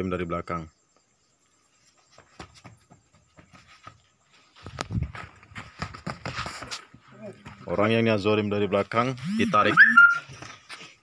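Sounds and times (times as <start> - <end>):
bare feet scuffing on dirt: 1.8 - 8.0.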